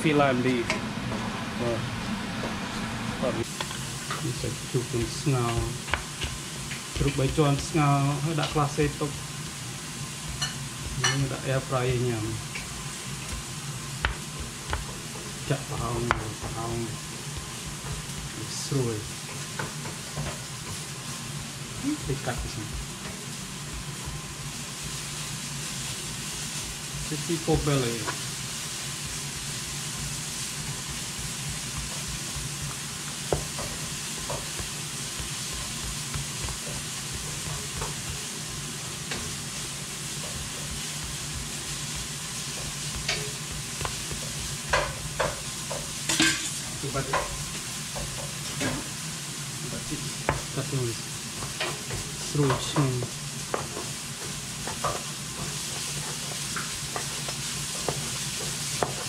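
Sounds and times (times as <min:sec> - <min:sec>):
food sizzling in a pan: 0:00.0 - 0:59.0.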